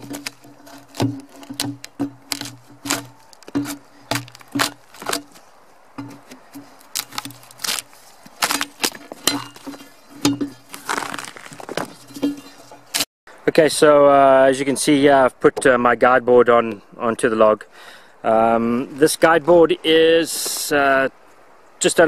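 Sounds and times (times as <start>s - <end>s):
axe chopping and scraping bark: 0.0s - 13.1s
tearing scrape of bark: 0.0s - 13.1s.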